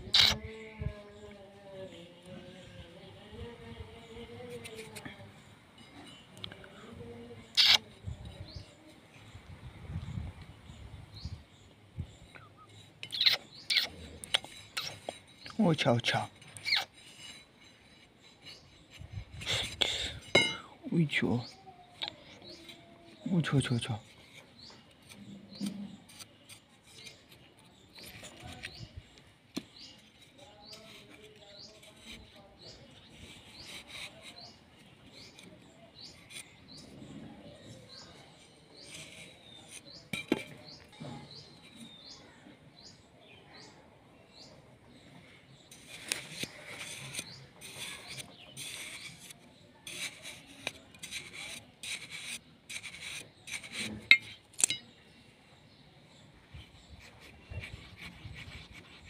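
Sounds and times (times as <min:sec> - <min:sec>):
birds chirping: 0:00.0 - 0:59.0
sickle scraping in dry sand: 0:45.2 - 0:54.1.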